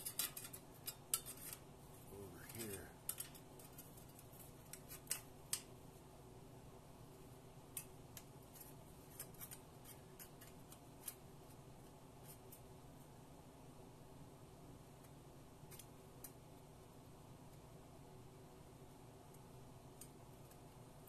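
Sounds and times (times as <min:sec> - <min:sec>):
clicks of sheet metal and pliers: 0:00.0 - 0:01.6.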